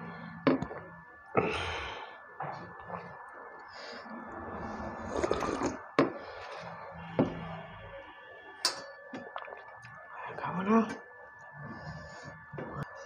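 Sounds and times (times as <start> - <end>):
slurping water from a plate: 4.5 - 6.7.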